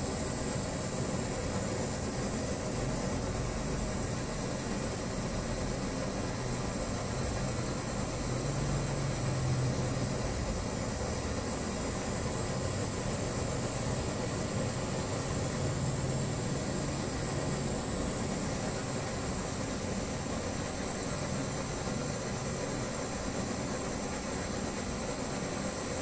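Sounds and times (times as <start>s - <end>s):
pressure stove hissing: 0.0s - 26.0s.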